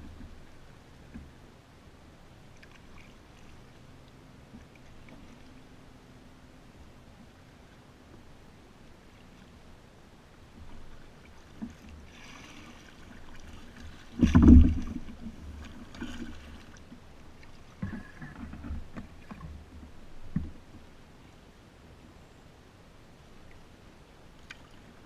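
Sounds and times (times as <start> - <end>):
paddle dipping and splashing: 10.5 - 20.9, 24.3 - 25.0
hollow thump on kayak: 13.4 - 16.5.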